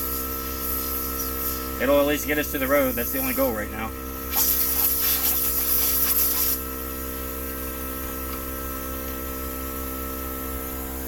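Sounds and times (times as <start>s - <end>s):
air hissing loudly: 0.0s - 6.6s
steady motor hum: 0.0s - 11.0s.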